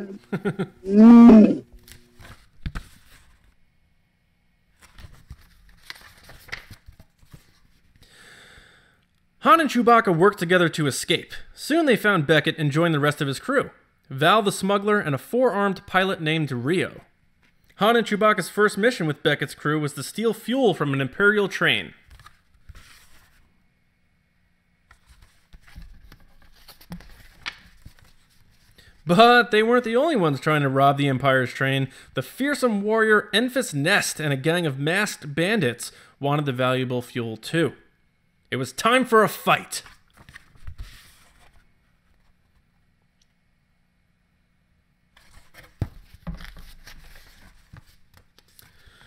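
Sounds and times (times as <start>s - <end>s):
paper pages rustling: 1.8s - 3.6s, 4.7s - 8.0s, 22.0s - 23.5s, 24.9s - 28.8s, 39.8s - 42.8s, 45.2s - 49.0s.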